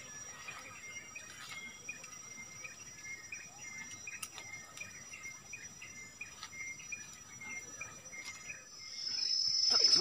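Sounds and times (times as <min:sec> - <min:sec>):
short chirping calls: 0:00.0 - 0:10.0
high-pitched insect buzz: 0:08.2 - 0:10.0.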